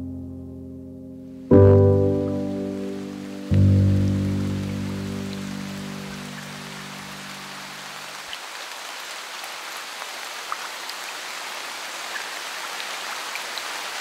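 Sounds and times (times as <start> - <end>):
low sustained music notes: 0.0 - 8.1
steady rain falling: 2.1 - 14.0.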